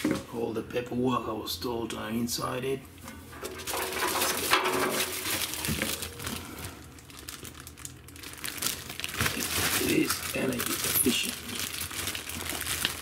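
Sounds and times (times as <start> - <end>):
plastic bag crinkling: 3.3 - 13.0.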